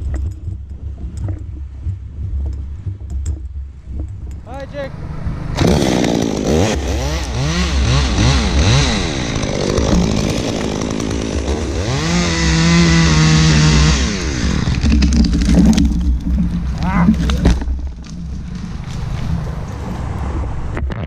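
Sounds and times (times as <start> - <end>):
chainsaw revving: 5.4 - 20.2.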